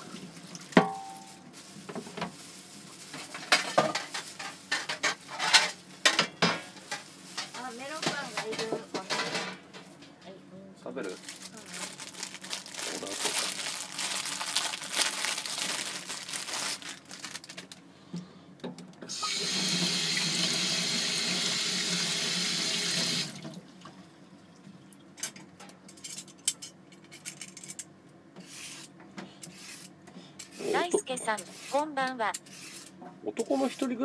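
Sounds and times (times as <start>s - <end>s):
crinkling and clatter: 0.4s - 10.2s, 11.0s - 17.9s.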